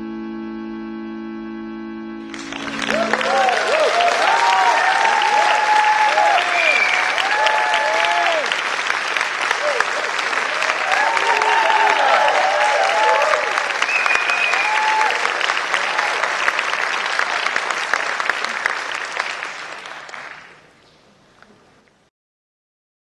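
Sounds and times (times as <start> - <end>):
audience applauding and cheering: 2.2 - 20.7
high whistle: 2.3 - 7.8, 13.8 - 15.1
shouted whoops: 2.7 - 8.6, 9.5 - 16.3.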